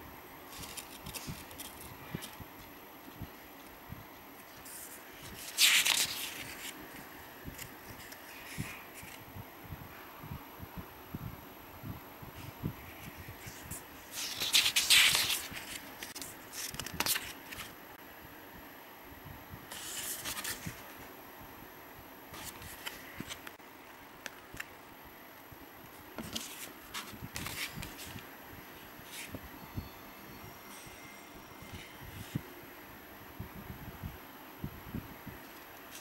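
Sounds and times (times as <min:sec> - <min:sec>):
paper pages rustling: 0:00.5 - 0:09.2, 0:12.9 - 0:17.8, 0:19.7 - 0:21.0, 0:22.3 - 0:23.6, 0:25.9 - 0:28.2, 0:29.0 - 0:29.4, 0:35.4 - 0:36.0.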